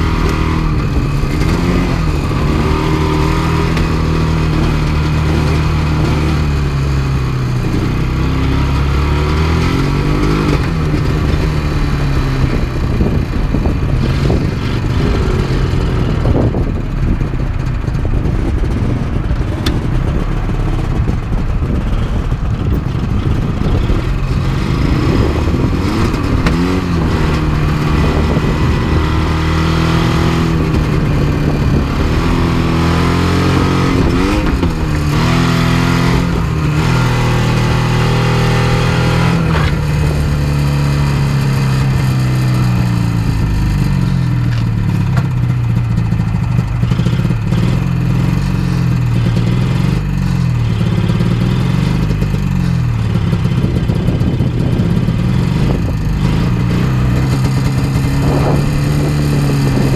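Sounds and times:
snowmobile engine revving: 0:00.0 - 0:16.9, 0:18.3 - 0:45.6, 0:46.8 - 0:59.9.

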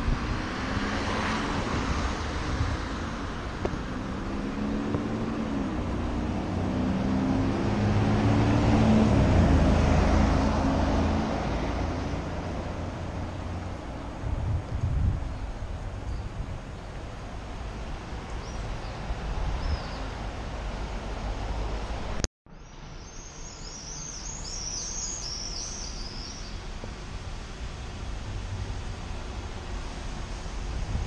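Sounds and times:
vehicle engine passing: 0:00.0 - 0:15.2.

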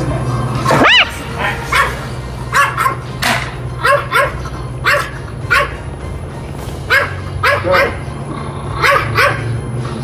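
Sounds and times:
dog barking: 0:00.8 - 0:03.1, 0:03.8 - 0:05.8, 0:06.9 - 0:08.1, 0:08.8 - 0:09.5.

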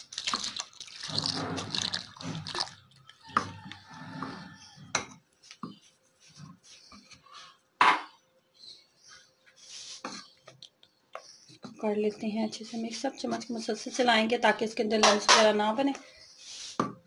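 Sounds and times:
liquid pouring and splashing: 0:00.0 - 0:03.9.

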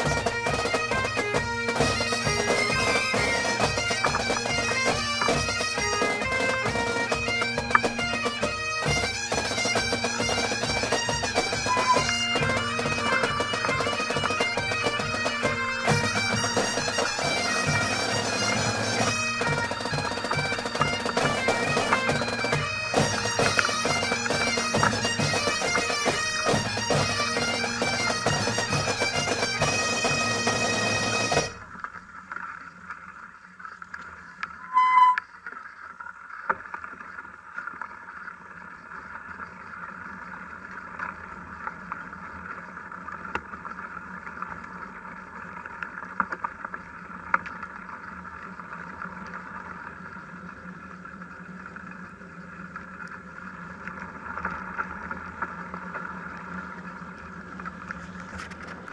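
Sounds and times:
bagpipe music: 0:00.0 - 0:31.6, 0:34.6 - 0:35.2
mountain bike rolling on dirt: 0:35.3 - 0:58.9.

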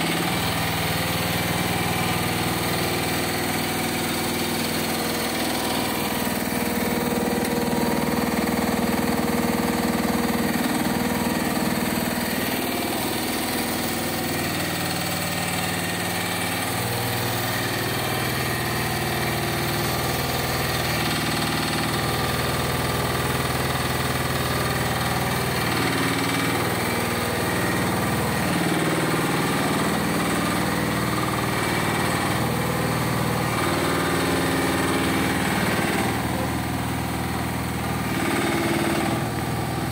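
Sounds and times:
mini excavator engine running: 0:00.0 - 0:39.9.

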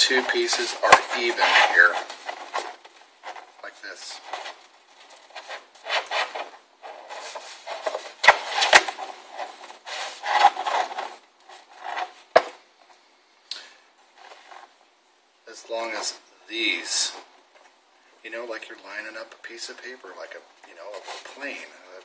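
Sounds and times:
paper rustling and scraping: 0:00.0 - 0:12.5.

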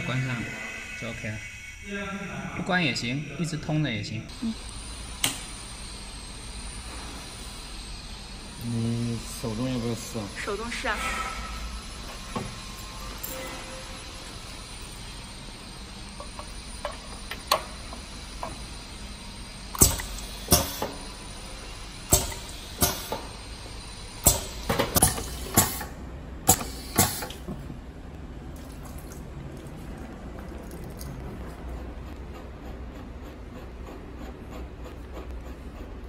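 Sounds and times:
steady background hum: 0:00.0 - 0:36.0
pneumatic piston clacks: 0:19.7 - 0:21.0, 0:22.1 - 0:23.3, 0:24.2 - 0:27.5.

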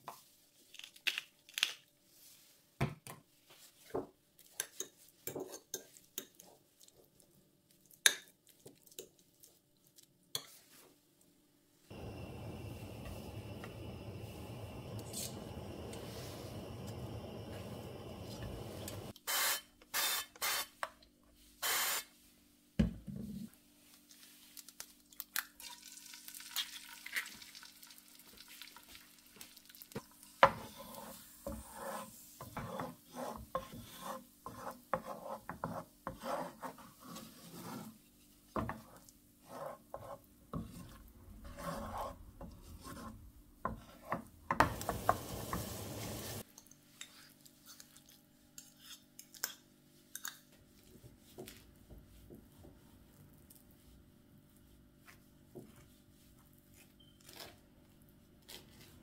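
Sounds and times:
frying hiss: 0:11.9 - 0:19.6, 0:44.5 - 0:46.5
wooden spatula scraping a pan: 0:30.4 - 0:47.9.

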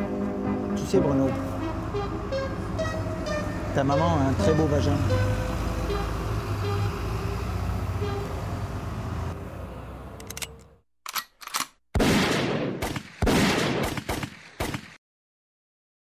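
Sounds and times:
traffic hum: 0:00.0 - 0:11.8
machine-gun fire: 0:12.0 - 0:15.0.

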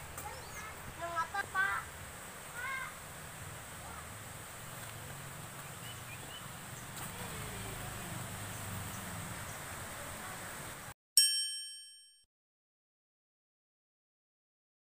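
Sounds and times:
outdoor background noise: 0:00.0 - 0:11.0
bright chime ringing: 0:11.2 - 0:12.2.

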